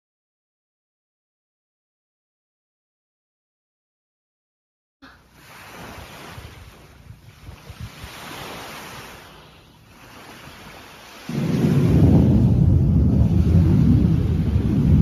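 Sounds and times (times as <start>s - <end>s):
wind noise on microphone: 5.4s - 15.0s.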